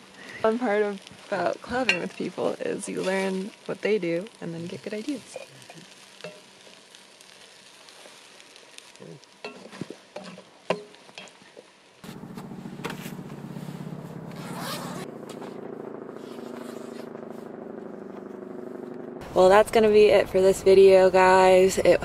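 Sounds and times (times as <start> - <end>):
stir-fry sizzling in a skillet: 0.0 - 14.3
low hum: 12.0 - 20.4.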